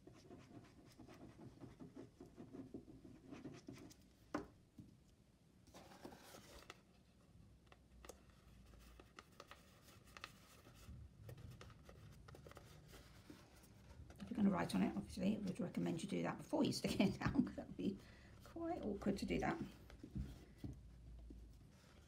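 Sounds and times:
paper and card rustling: 5.7 - 6.9, 8.0 - 15.8.

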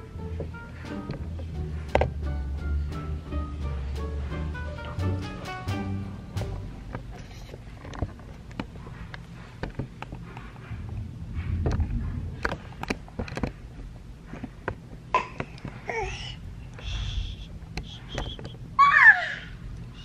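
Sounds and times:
low rumble: 0.0 - 7.2, 10.4 - 14.3.

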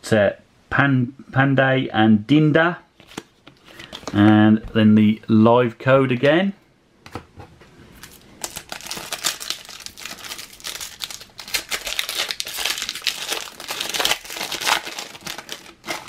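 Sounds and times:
foil pack crinkling: 8.0 - 16.0.

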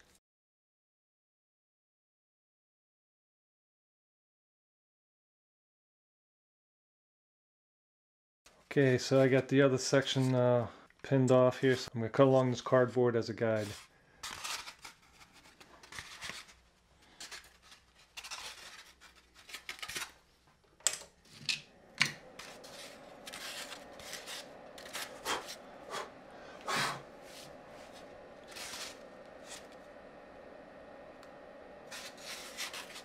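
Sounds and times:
faint steady hum: 8.7 - 33.0
card rubbing and scraping on foam: 13.6 - 16.6, 17.2 - 20.1, 22.4 - 26.1, 26.7 - 29.8, 31.9 - 33.0.

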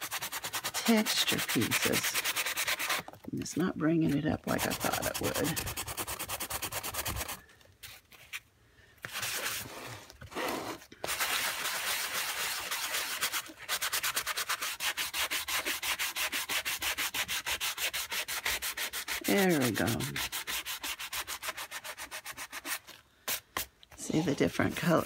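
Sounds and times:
sanding block scrubbing paper: 0.0 - 3.0, 4.0 - 7.4, 11.1 - 23.4, 24.0 - 25.0.

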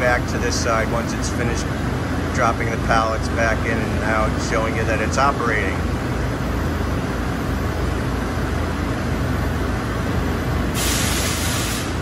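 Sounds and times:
machinery low hum: 0.0 - 12.0
compressed air hiss: 10.7 - 12.0.

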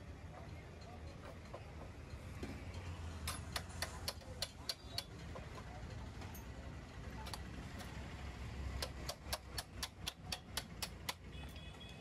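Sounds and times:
sharp metallic clicks: 1.1 - 5.6, 7.2 - 8.0, 8.7 - 11.7.

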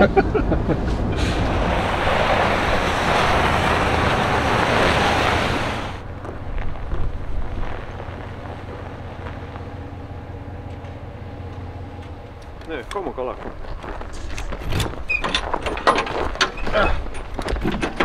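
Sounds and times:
pickup truck engine rumbling: 0.0 - 18.0
loud rushing noise: 0.6 - 6.0.

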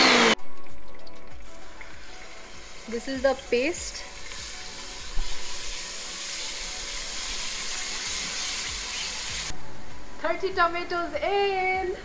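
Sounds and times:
chili paste sizzling in oil: 0.0 - 9.5.

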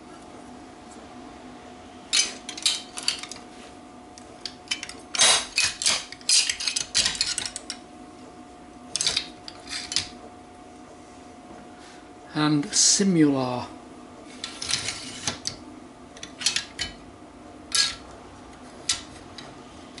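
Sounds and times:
metal parts clinking: 2.1 - 3.4, 4.4 - 7.8, 8.9 - 10.1, 16.2 - 17.0, 17.7 - 18.0.

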